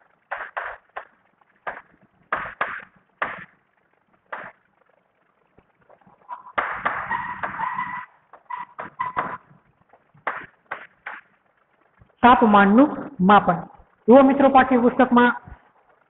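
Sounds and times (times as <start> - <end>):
high chalk squeak: 6.3 - 9.4.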